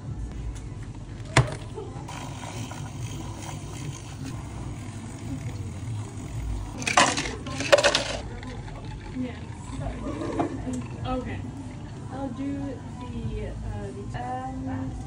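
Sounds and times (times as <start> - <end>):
low steady hum: 0.0 - 15.0
ice cubes clattering in plastic cup: 6.8 - 9.2.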